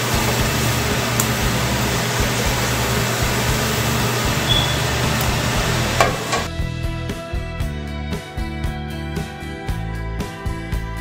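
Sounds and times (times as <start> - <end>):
tortilla sizzling in hot oil: 0.0 - 6.5
music: 0.0 - 11.0.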